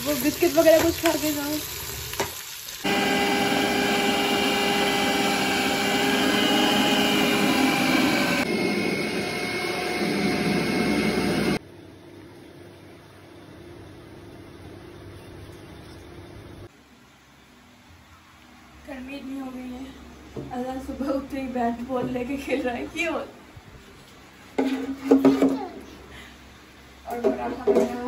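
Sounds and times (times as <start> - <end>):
food processor motor whine: 2.8 - 11.6.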